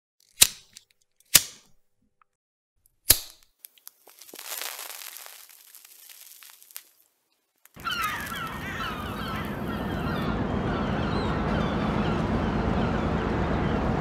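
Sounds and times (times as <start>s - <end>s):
sharp cracks: 3.0s - 9.6s
snap: 3.1s - 3.5s
even crackling noise: 3.9s - 10.6s.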